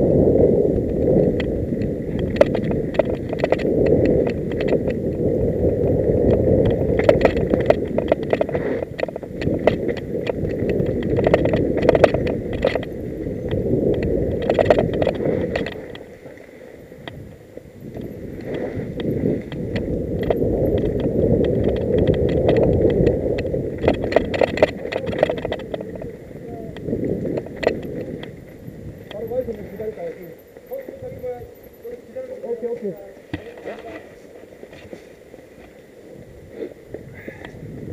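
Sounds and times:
bike clicks and rattles: 0.8 - 16.2, 16.8 - 35.8
tyres rumbling on dirt: 17.9 - 34.9.

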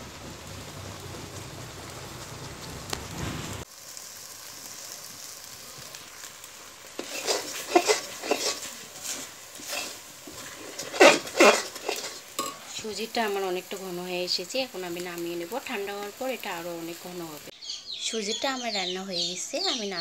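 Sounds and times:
steady hiss: 0.0 - 17.6
semolina sizzling in a pan: 0.0 - 20.0
steel spoon scraping a pan: 7.0 - 13.8.

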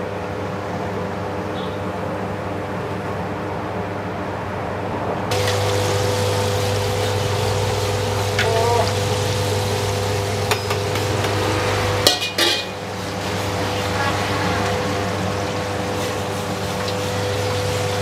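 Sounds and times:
gas burner hum: 0.0 - 18.0
chicken sizzling in hot oil: 5.3 - 18.0
metal strainer clanking on wok: 12.0 - 12.8.

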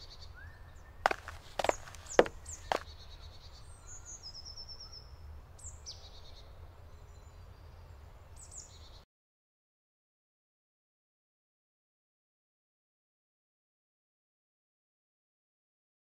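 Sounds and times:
footstep on track: 1.1 - 2.8.

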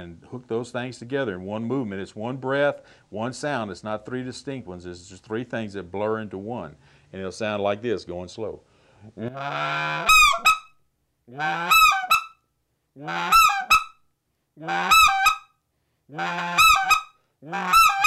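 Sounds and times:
goose call blown by mouth: 9.2 - 12.4, 13.0 - 14.0, 14.6 - 15.5, 16.1 - 18.0.

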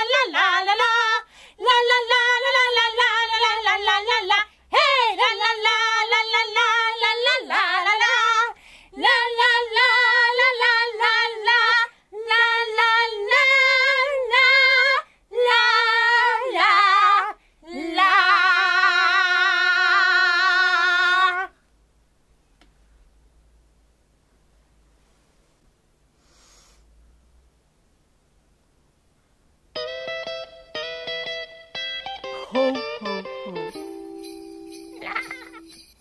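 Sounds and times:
woman singing in puppet voice: 0.0 - 21.6, 34.9 - 35.8.

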